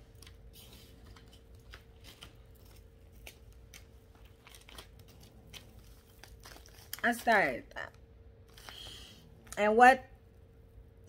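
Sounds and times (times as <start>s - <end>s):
paper rustling: 0.0s - 7.5s
faint steady hum: 0.0s - 11.0s.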